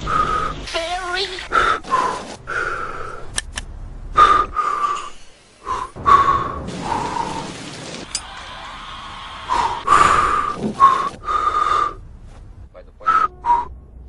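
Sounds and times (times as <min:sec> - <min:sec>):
people blowing on hot soup: 0:08.1 - 0:12.0.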